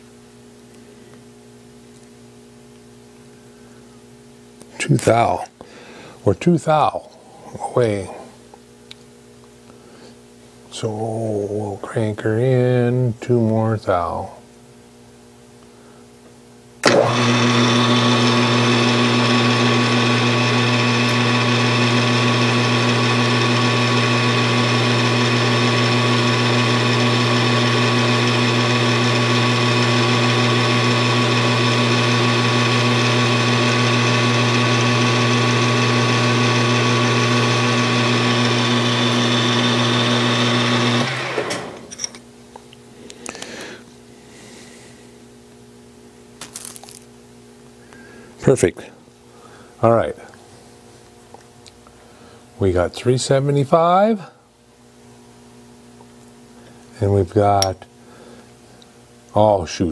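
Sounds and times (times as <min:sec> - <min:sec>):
metal lathe motor hum: 0:16.8 - 0:42.1.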